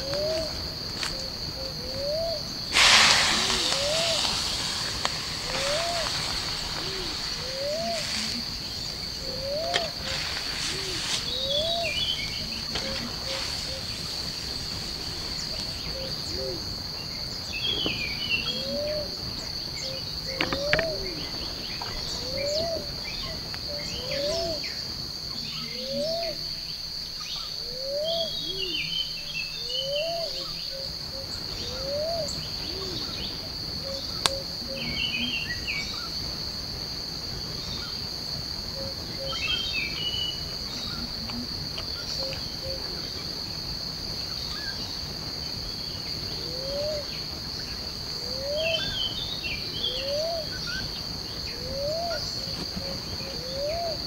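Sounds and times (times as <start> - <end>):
birds twittering: 0.0 - 36.2, 38.8 - 41.1, 45.8 - 54.0
high-pitched insect drone: 0.0 - 36.2
low rising call: 1.8 - 14.0.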